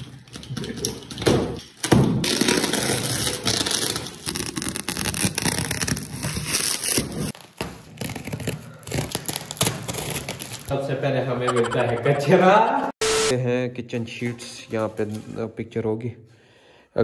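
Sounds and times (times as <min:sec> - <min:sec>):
packaging tearing and crinkling: 0:02.2 - 0:10.7.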